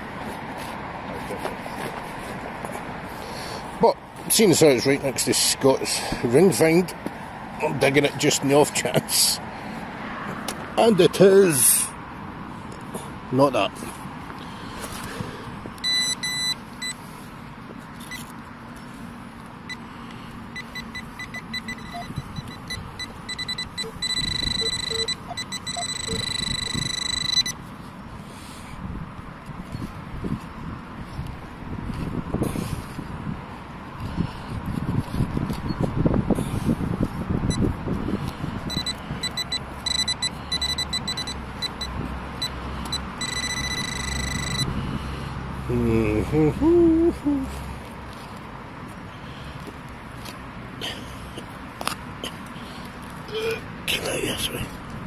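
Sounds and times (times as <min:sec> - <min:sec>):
metal detector beeping: 0:15.8 - 0:17.0, 0:18.0 - 0:18.3, 0:19.7 - 0:19.9, 0:20.5 - 0:27.6, 0:37.5 - 0:37.7, 0:38.7 - 0:44.8.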